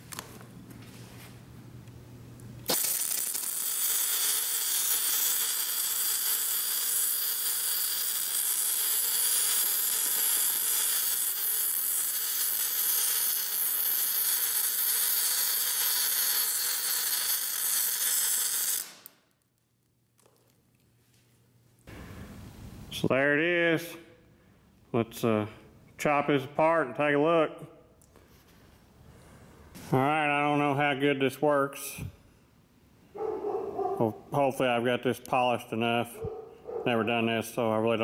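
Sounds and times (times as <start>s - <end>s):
welding arc hissing: 2.6s - 19.2s.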